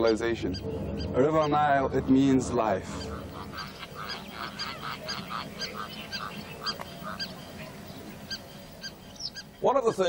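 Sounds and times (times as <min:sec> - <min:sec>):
faint steady hiss: 0:00.0 - 0:10.0
chorus of short animal calls: 0:02.8 - 0:09.6.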